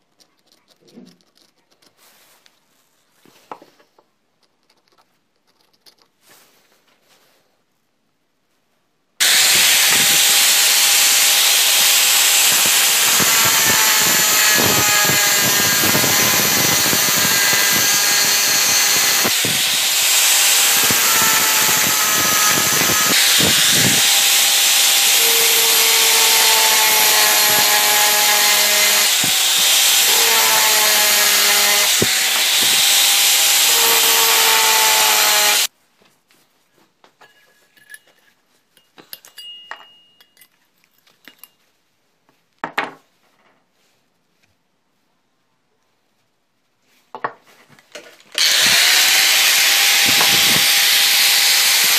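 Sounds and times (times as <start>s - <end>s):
angle grinder cutting steel: 9.2s - 35.7s, 48.3s - 51.9s
faint metallic clinks: 37.2s - 41.7s.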